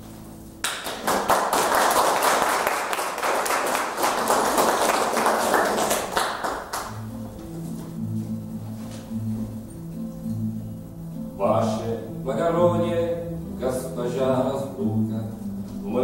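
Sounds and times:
audience applauding: 0:00.6 - 0:07.0
acoustic guitar playing: 0:02.8 - 0:16.0.

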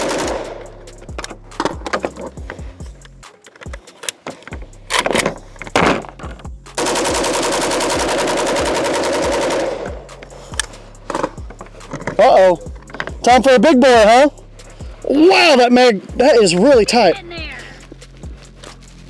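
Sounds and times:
automatic rifle fire: 0:00.0 - 0:00.6, 0:06.8 - 0:10.1
rifle handling clacks: 0:01.1 - 0:06.3.

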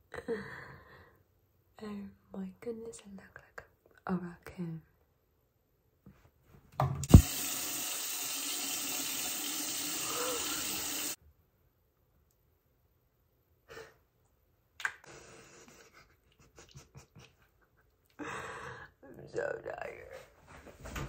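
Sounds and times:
sink tap running: 0:07.0 - 0:11.2.

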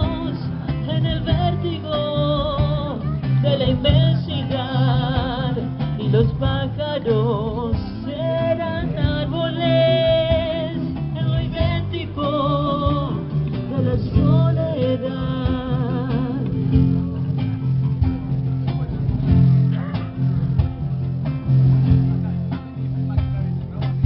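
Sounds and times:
person singing with vibrato: 0:00.0 - 0:17.2
acoustic guitars strumming: 0:00.0 - 0:24.0
bass: 0:00.0 - 0:24.0.

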